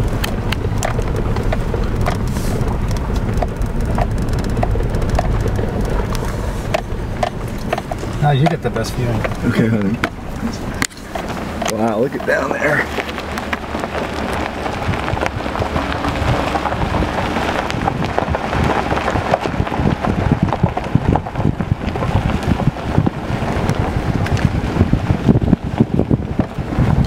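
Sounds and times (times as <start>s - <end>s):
small crackles: 0.0s - 27.0s
tyres rumbling on dirt road: 0.0s - 27.0s
wind buffeting microphone: 0.0s - 27.0s.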